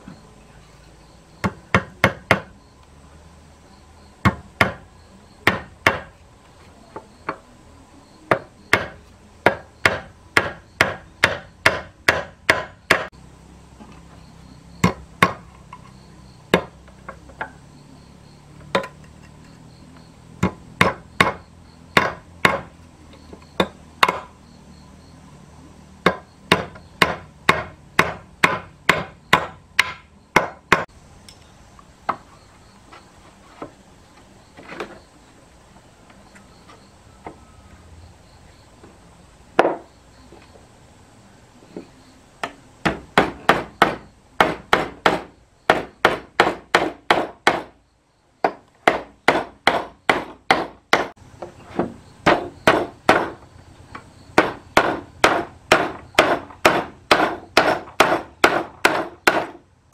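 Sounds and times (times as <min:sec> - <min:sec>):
hammer striking nails: 0:01.4 - 0:02.5, 0:04.2 - 0:04.8, 0:05.4 - 0:06.1, 0:08.3 - 0:13.1, 0:14.8 - 0:15.4, 0:16.5 - 0:16.8, 0:20.4 - 0:21.4, 0:22.0 - 0:22.7, 0:23.6 - 0:24.3, 0:26.0 - 0:30.9, 0:42.4 - 0:47.8, 0:48.4 - 0:51.2, 0:51.8 - 0:53.4, 0:54.4 - 0:59.6.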